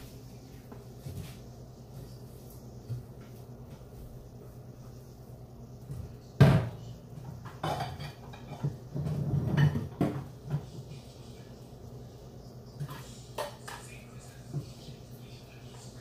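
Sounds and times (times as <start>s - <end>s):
kitchen items knocking and rattling: 5.9s - 10.9s.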